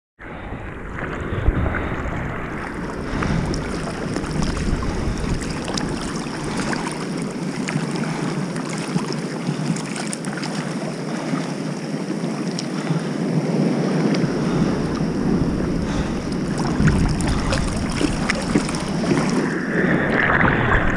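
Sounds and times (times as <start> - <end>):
low rumble: 0.2 - 8.2, 14.1 - 20.9
surf breaking: 0.2 - 20.9
wind buffeting microphone: 0.2 - 20.9
water sloshing and splashing: 0.4 - 20.9.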